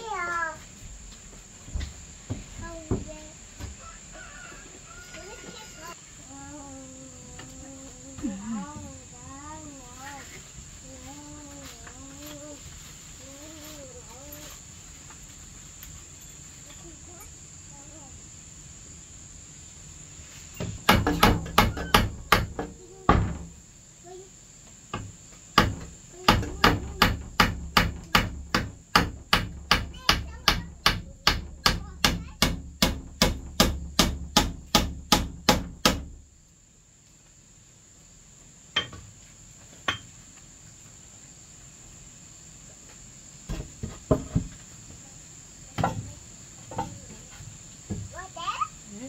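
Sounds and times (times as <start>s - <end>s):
high-pitched insect drone: 12.2s - 29.9s
hammer striking wooden frame: 20.6s - 23.5s, 24.9s - 36.2s.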